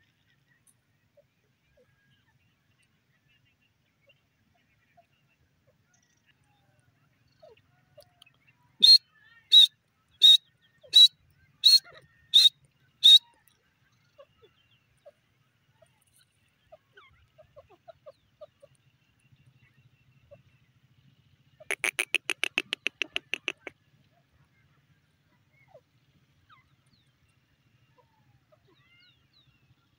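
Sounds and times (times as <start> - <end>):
bird sharp high calls: 8.8 - 13.4, 21.6 - 23.7.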